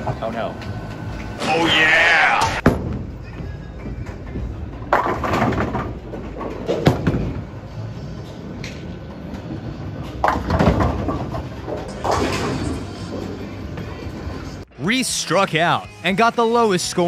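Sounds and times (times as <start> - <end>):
bowling pins clattering: 3.8 - 7.6, 9.4 - 14.4.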